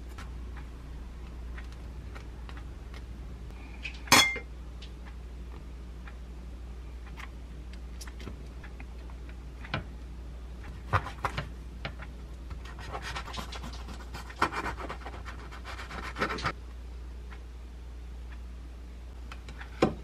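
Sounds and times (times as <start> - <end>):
steady low hum: 0.0 - 20.0
knife sawing through bread crust: 12.7 - 16.5.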